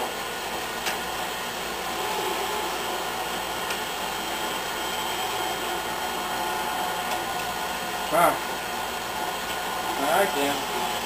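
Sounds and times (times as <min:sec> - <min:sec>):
stand mixer motor running: 0:00.0 - 0:11.0.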